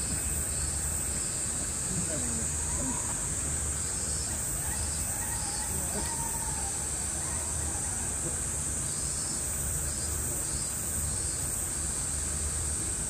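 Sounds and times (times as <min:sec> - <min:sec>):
cicadas droning: 0:00.0 - 0:13.0.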